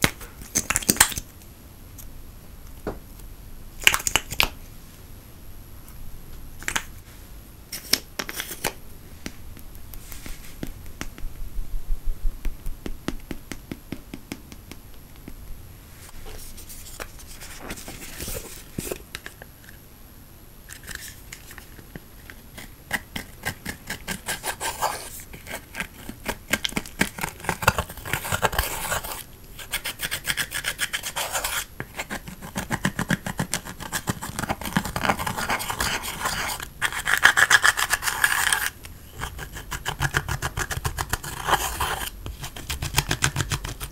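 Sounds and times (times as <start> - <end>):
clicks and taps: 12.4 - 15.4
metal tool scraping eyeshadow: 33.9 - 43.8.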